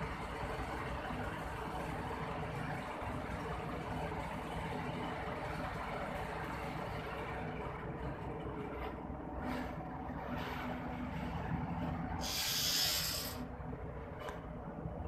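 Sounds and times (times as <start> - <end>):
machinery rumbling: 0.0 - 15.0
loud hiss: 12.2 - 13.4.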